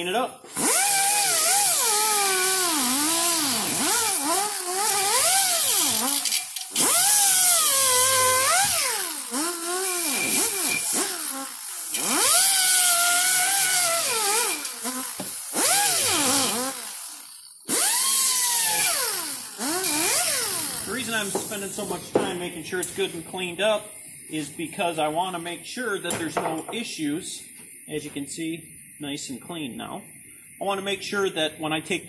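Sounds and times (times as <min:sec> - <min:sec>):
pneumatic die grinder whining: 0:00.4 - 0:23.0.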